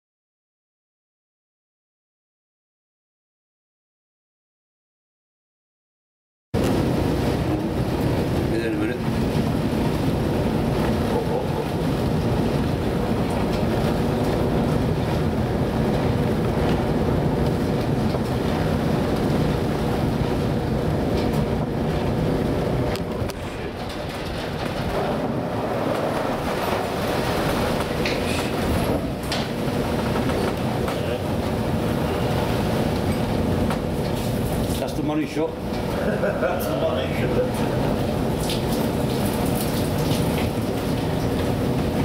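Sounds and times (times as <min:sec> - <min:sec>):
sea noise: 0:06.6 - 0:42.0
ship engines rumbling: 0:06.6 - 0:42.0
wind: 0:06.6 - 0:42.0
water spraying over bow: 0:24.3 - 0:35.1, 0:37.4 - 0:42.0.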